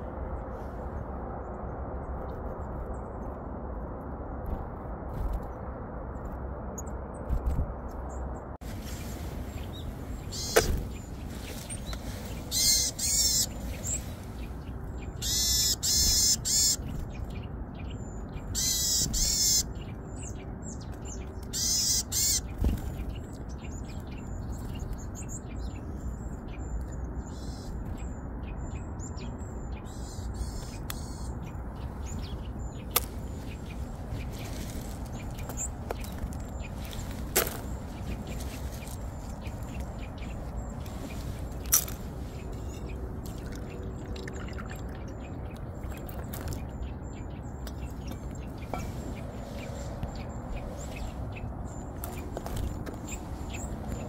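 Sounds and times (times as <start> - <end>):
buzzy squeaky bird calls: 8.9 - 14.1, 15.2 - 16.8, 18.5 - 19.8, 21.5 - 22.7.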